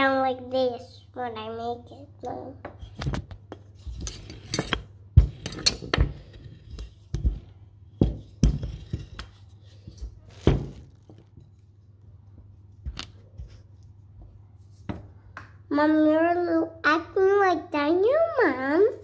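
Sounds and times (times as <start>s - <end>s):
utensils knocking on table: 3.9s - 9.3s.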